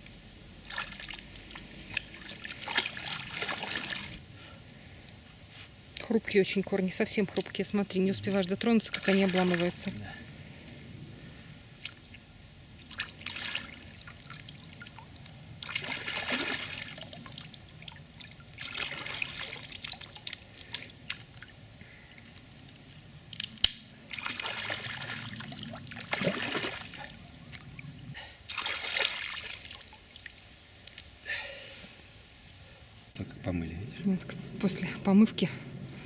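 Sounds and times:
stream water splashing: 0.6 - 4.2, 8.2 - 10.0, 12.8 - 21.5, 24.1 - 27.6, 28.4 - 30.5.

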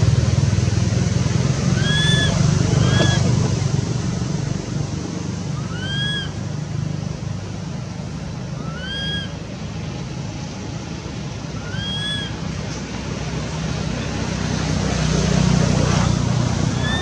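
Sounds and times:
low background rumble: 0.0 - 17.0
whistled animal call: 1.7 - 3.3, 5.6 - 6.4, 8.6 - 9.4, 11.6 - 12.4, 16.7 - 17.0.

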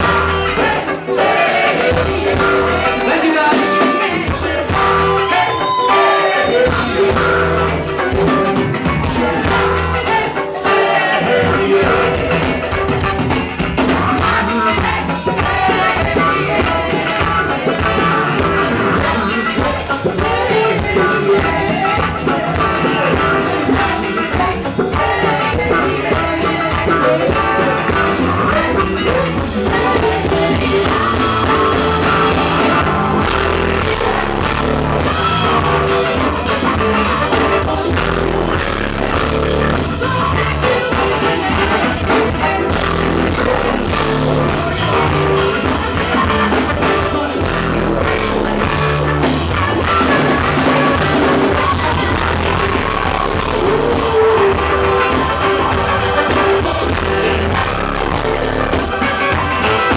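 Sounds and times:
person singing: 0.0 - 13.0, 13.8 - 59.9
live funk band playing: 0.0 - 59.9.

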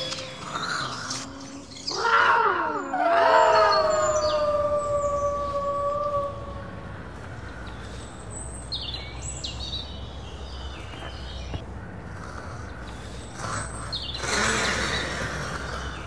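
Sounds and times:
birds chirping: 0.0 - 16.0
howl: 1.9 - 6.8.

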